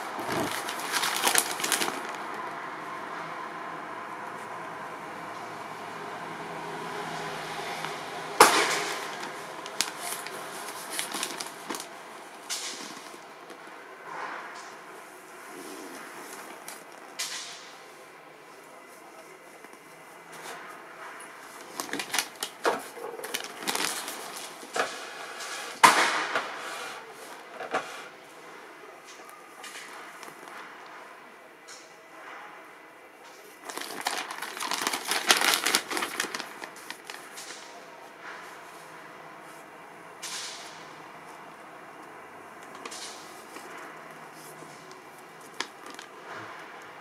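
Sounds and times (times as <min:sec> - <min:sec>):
paper brochure rustling: 0:00.0 - 0:02.5, 0:07.7 - 0:17.1, 0:18.6 - 0:25.7, 0:33.4 - 0:39.7, 0:42.6 - 0:46.7.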